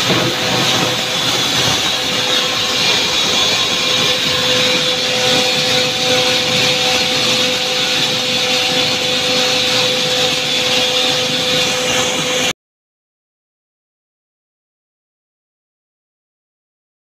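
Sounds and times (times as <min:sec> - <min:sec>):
constant hum tone: 0:00.0 - 0:12.5
machine whir: 0:00.0 - 0:12.5.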